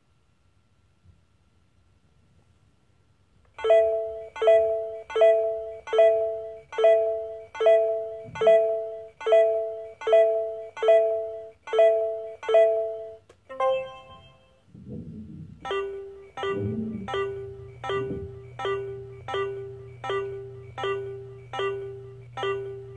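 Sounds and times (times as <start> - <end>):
two-tone electronic alarm chime: 3.6 - 14.6, 15.6 - 22.9.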